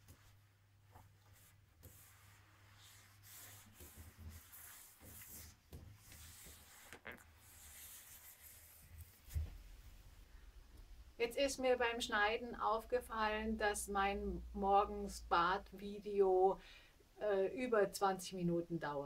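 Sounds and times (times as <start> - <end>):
cloth rubbing wet tiles: 0.0 - 9.6.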